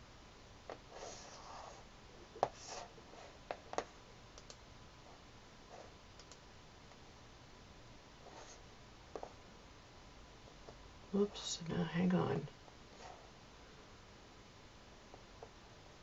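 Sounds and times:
mouse and keyboard clicks: 0:06.2 - 0:06.4
soft rustling: 0:12.8 - 0:13.4.

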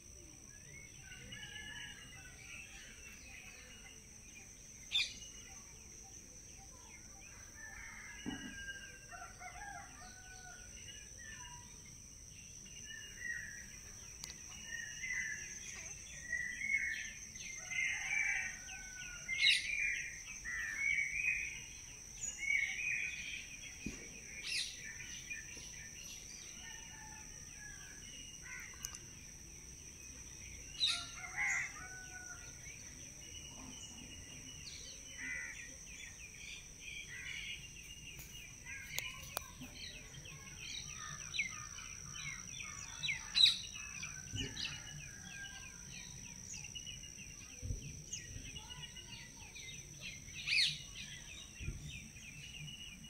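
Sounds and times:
small birds chirping: 0:32.8 - 0:53.0.

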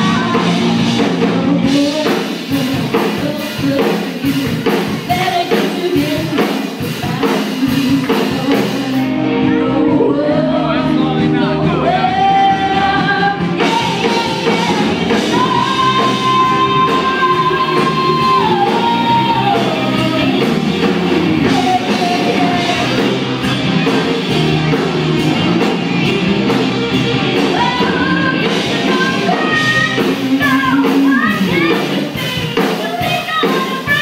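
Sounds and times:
woman singing: 0:00.0 - 0:23.1, 0:27.4 - 0:34.0
rock band playing: 0:00.0 - 0:34.0.

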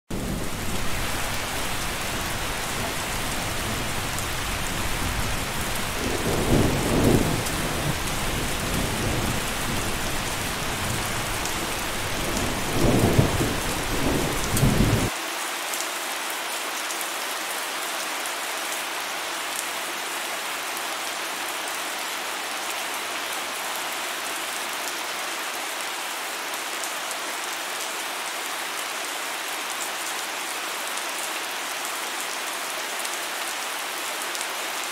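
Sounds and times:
steady rain falling: 0:00.1 - 0:34.9
low thunder rumbling: 0:00.2 - 0:15.1.

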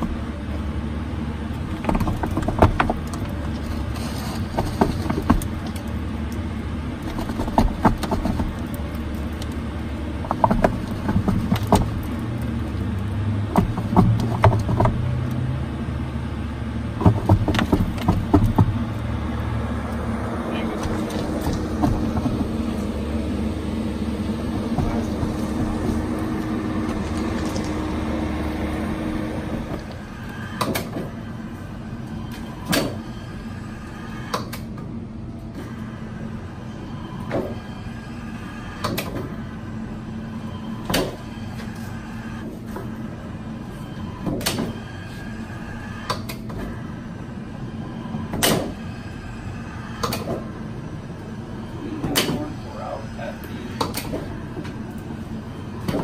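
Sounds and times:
engine hum: 0:00.0 - 0:56.0
machine low steady hum: 0:00.0 - 0:56.0.

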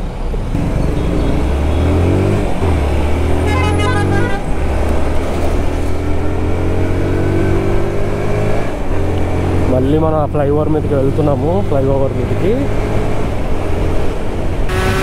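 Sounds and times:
motorcycle engine accelerating: 0:00.5 - 0:15.0
horn toot: 0:03.4 - 0:04.5, 0:14.7 - 0:15.0.

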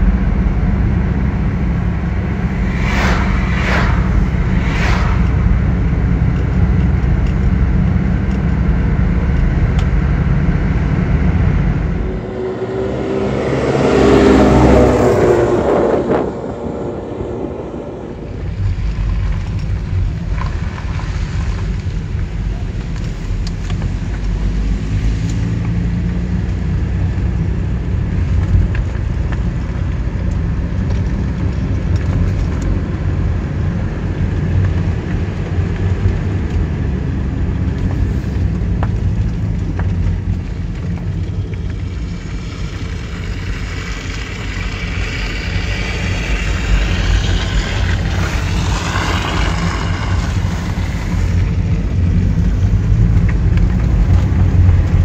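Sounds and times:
loud engine droning: 0:00.0 - 0:19.5, 0:30.6 - 0:55.0
car road rumble inside cabin: 0:00.0 - 0:55.0.

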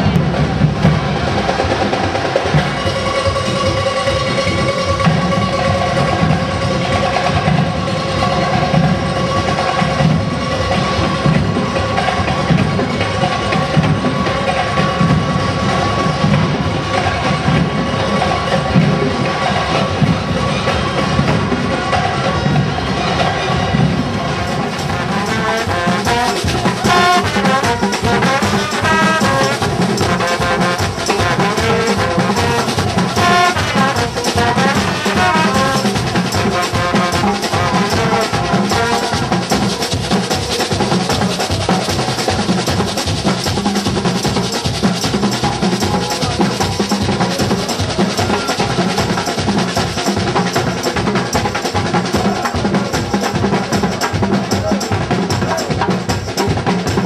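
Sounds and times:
steady drumming: 0:00.0 - 0:57.0
trombones and trumpets melody: 0:22.0 - 0:39.9.

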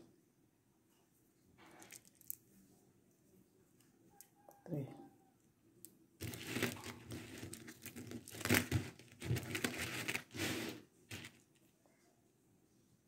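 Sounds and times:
beads crinkling rustle: 0:01.6 - 0:02.5, 0:06.2 - 0:11.7.

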